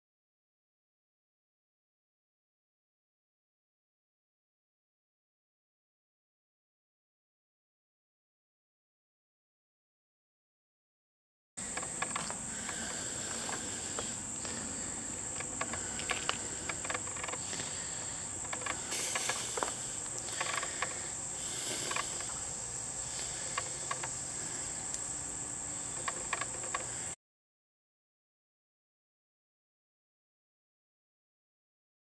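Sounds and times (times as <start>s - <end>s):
insects droning: 11.6s - 27.2s
hand tools clicking and tapping: 11.7s - 14.6s, 15.3s - 17.8s, 18.4s - 21.0s, 25.9s - 27.0s.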